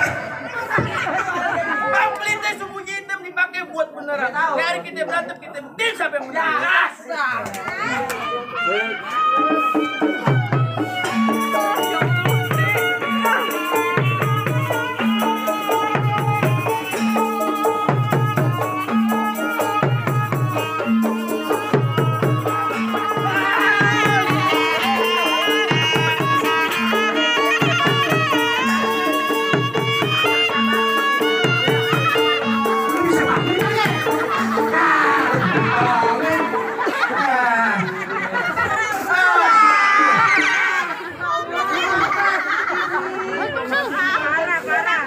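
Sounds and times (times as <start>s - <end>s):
wind instrument melody: 7.8s - 36.7s
drums beating steadily: 9.2s - 38.8s.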